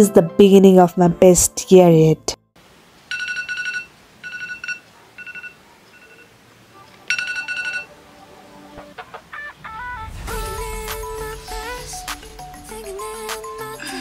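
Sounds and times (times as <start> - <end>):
phone alarm beeping: 3.1 - 6.4, 7.1 - 8.0.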